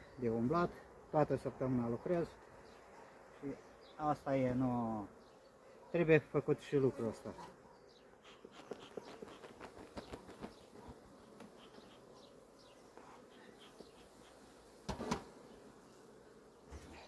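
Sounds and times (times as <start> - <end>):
bees buzzing: 0.0 - 17.0
hive clicks and rustles: 8.4 - 15.4.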